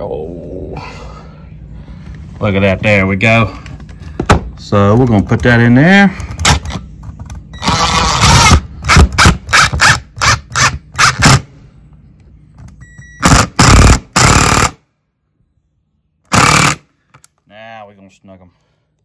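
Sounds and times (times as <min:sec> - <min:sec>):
power drill driving screws: 0:07.6 - 0:11.4, 0:16.3 - 0:16.8.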